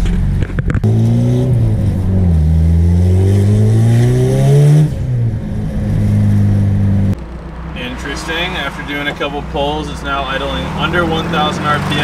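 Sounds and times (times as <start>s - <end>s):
car engine accelerating: 0.0s - 12.0s.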